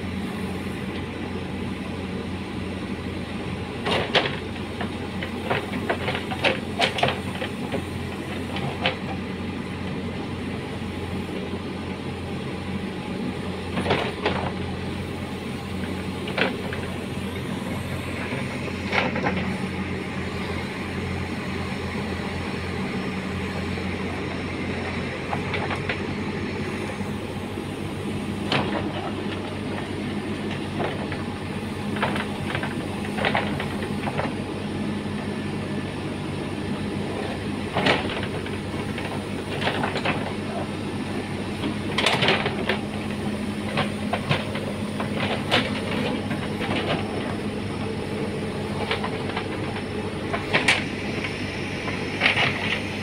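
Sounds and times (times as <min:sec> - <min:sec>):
diesel engine running: 0:00.0 - 0:53.0
metallic clanks of backhoe bucket: 0:15.8 - 0:19.6, 0:28.5 - 0:31.3, 0:37.1 - 0:40.7, 0:41.6 - 0:53.0.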